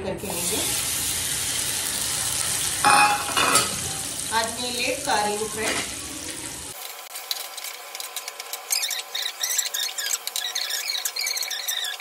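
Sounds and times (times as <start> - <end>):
chicken sizzling in oil: 0.2 - 12.0
spatula stirring in pan: 6.7 - 12.0.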